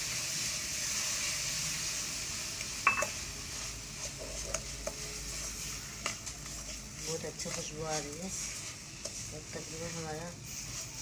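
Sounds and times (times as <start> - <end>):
milk sizzling in hot pan: 0.0 - 11.0
small scrapes: 4.0 - 11.0.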